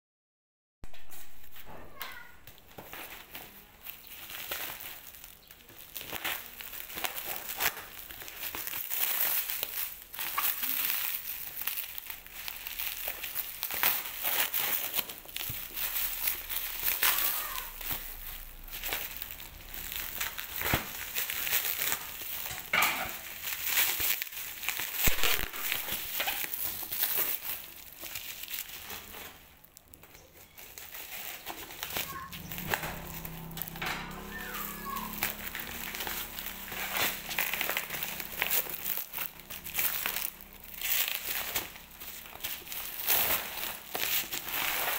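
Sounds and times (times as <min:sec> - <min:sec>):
plastic film crinkling: 0:00.9 - 0:44.9.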